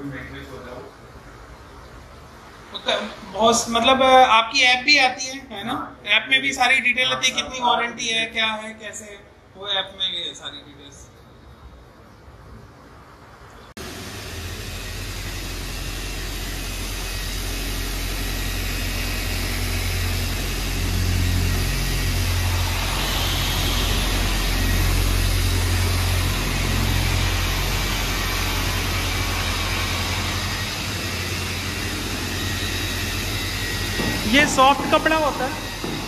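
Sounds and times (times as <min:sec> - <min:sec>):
electric car polisher humming: 0:13.8 - 0:36.0.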